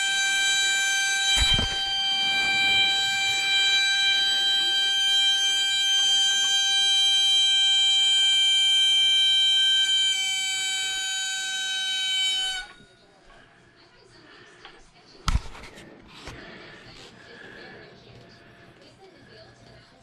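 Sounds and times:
pressure regulator whistling: 0.0s - 13.2s.

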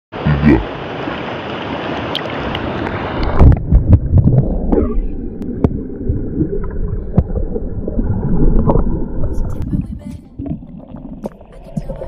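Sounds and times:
river water rushing: 0.2s - 3.5s
muffled underwater rumble with bubbles: 2.8s - 12.0s.

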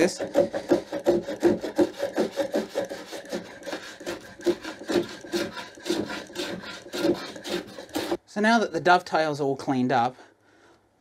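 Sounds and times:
hand plane rasping on wood: 0.0s - 8.2s.

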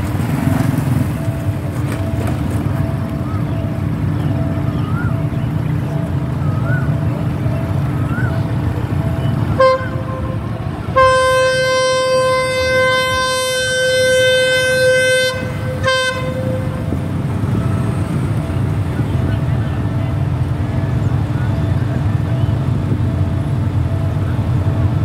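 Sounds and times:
train rumble: 0.0s - 25.0s
locomotive horn blasts: 9.0s - 18.7s.

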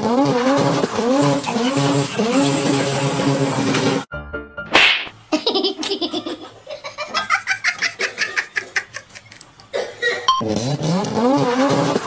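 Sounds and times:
person laughing: 5.3s - 10.3s.

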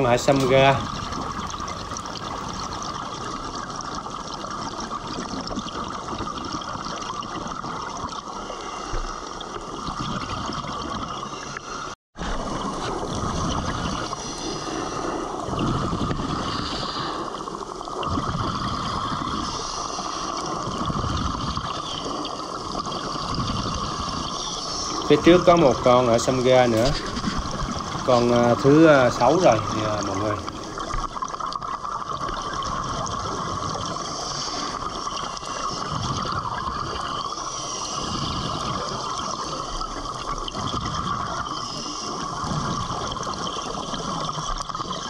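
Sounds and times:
underwater bubbling: 0.0s - 45.0s
underwater rushing hiss: 11.3s - 31.3s, 32.2s - 45.0s.

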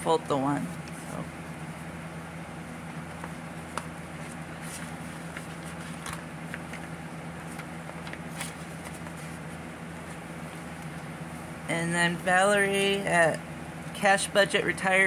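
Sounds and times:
paper bills rustling: 2.9s - 11.0s.

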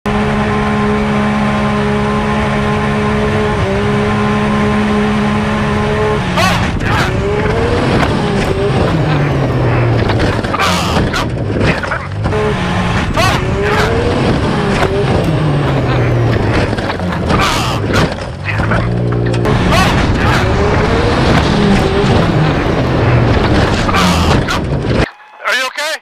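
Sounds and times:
engine running at high speed: 0.0s - 25.1s
heavy bangs and crunches of crash: 16.2s - 25.1s.

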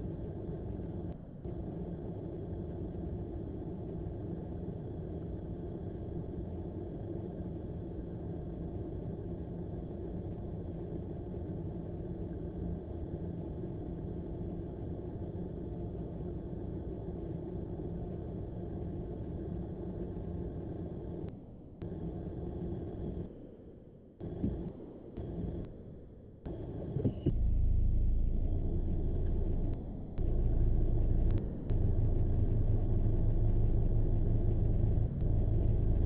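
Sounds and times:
car engine idling: 27.3s - 36.0s.

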